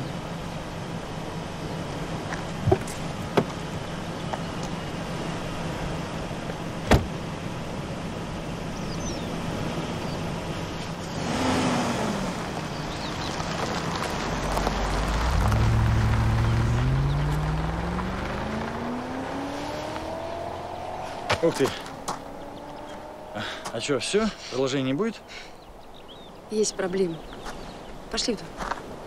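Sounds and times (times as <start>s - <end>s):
car engine running: 0.0s - 24.4s
vehicle accelerating: 8.7s - 24.7s.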